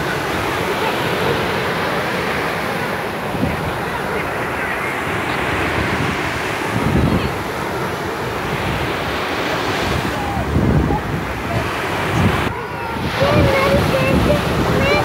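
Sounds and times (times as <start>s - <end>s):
faint voices: 0.0s - 15.0s
small waves on a beach: 0.0s - 15.0s
wind buffeting microphone: 0.0s - 15.0s.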